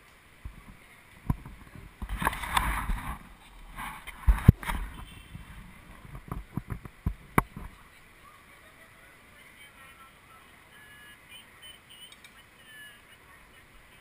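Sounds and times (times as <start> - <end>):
wind gusts on microphone: 0.4 - 7.8.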